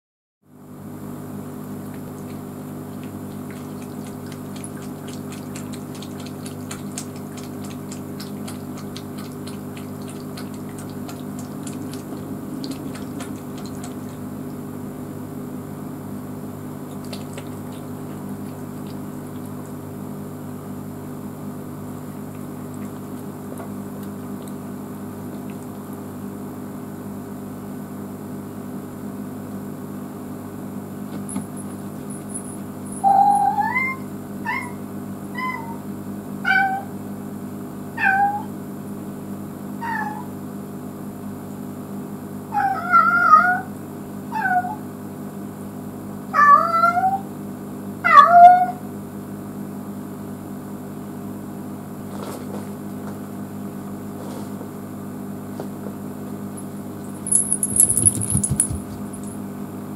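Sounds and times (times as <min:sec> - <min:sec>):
steady low hum: 0:00.5 - 0:27.4, 0:30.0 - 0:35.6, 0:55.6 - 0:59.9
cat lapping water: 0:01.8 - 0:14.7, 0:16.8 - 0:19.8, 0:22.4 - 0:25.9
trickling water: 0:01.8 - 0:14.7, 0:16.9 - 0:19.8.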